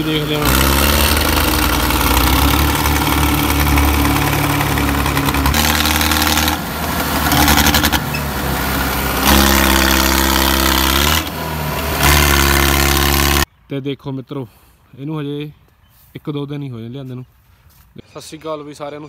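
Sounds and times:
tractor diesel engine labouring: 0.0 - 13.5.

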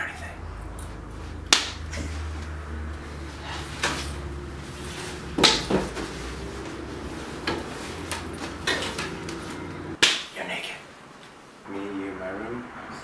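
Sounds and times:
knocks and thumps: 5.3 - 6.2.

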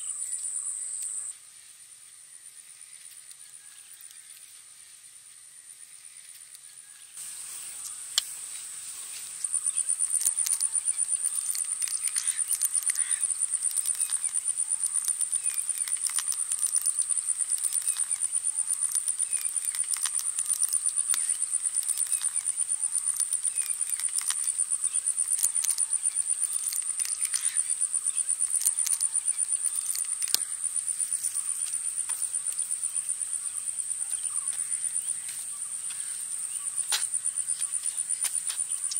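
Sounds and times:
insects chirring: 0.0 - 38.9
faint ticks: 9.2 - 33.0.

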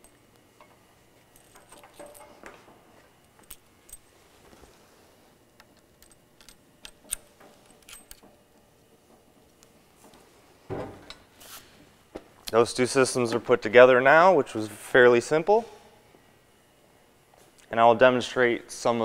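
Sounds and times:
small metallic clicks and clinks: 0.0 - 2.6, 5.6 - 8.4.

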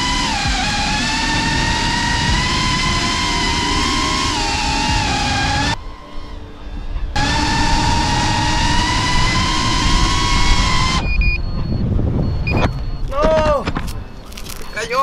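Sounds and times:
drone motors whining: 0.0 - 14.8
short high beeps: 10.9 - 15.0.

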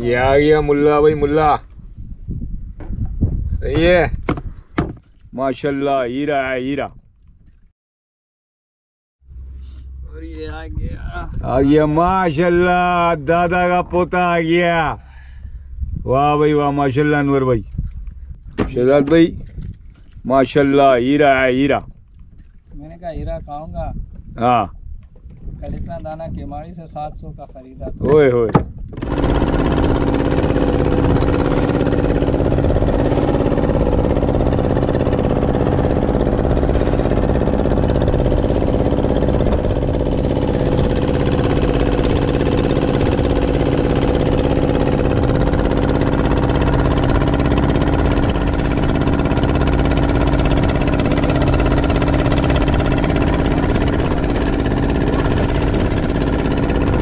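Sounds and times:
boat engine droning: 9.2 - 19.3, 28.9 - 57.0.

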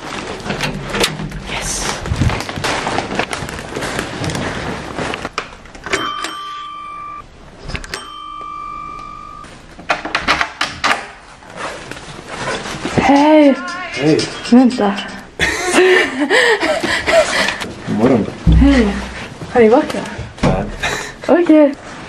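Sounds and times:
clattering and rustling of things: 0.0 - 6.6, 9.4 - 22.0
doorbell ringing: 5.9 - 7.2, 7.9 - 9.5.

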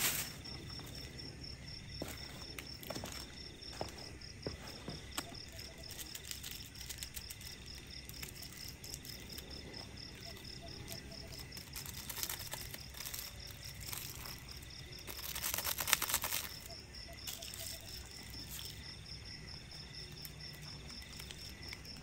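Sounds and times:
seasoning packet rustling: 0.0 - 1.1, 4.6 - 9.5, 11.2 - 16.7
crickets chirping: 0.0 - 22.0.

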